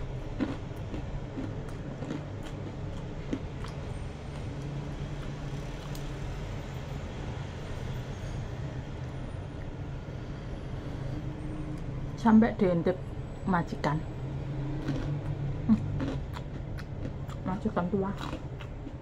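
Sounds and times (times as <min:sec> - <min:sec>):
crunching of someone eating: 0:00.0 - 0:06.4, 0:14.6 - 0:19.0.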